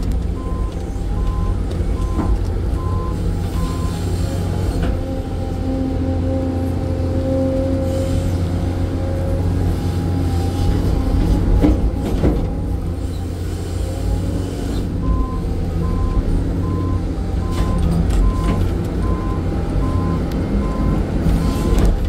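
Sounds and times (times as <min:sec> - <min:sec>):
excavator diesel engine running: 0:00.0 - 0:22.0
warning alarm beeping: 0:00.4 - 0:04.1, 0:15.0 - 0:21.8.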